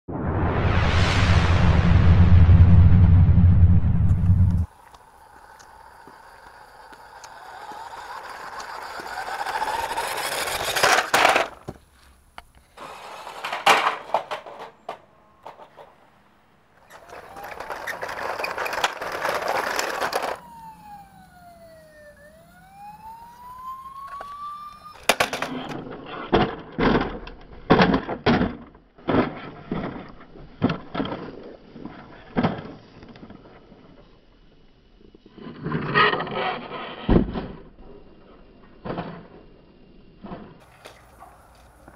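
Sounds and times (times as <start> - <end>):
rc truck motor whine: 4.5 - 11.7, 16.8 - 26.0
toy police siren wailing: 5.5 - 10.8, 16.9 - 25.6
rc truck knocks and rattles: 6.5 - 11.8, 12.8 - 16.0, 16.9 - 20.6, 25.0 - 33.6, 35.6 - 39.4.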